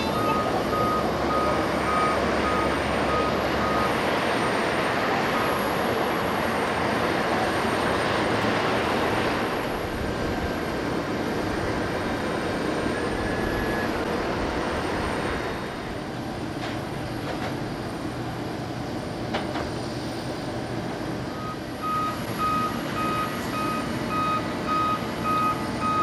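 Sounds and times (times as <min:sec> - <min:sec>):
vehicle reversing beeper: 0:00.0 - 0:08.2, 0:12.5 - 0:14.2, 0:21.3 - 0:26.0
aircraft and ground equipment noise: 0:00.0 - 0:26.0.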